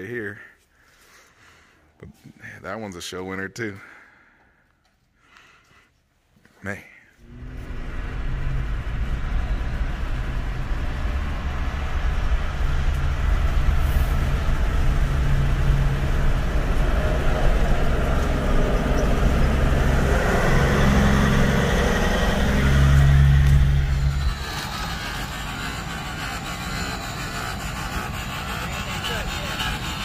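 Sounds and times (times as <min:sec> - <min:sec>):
road and tyre noise: 0:07.2 - 0:30.0
truck diesel engine drone: 0:07.2 - 0:30.0.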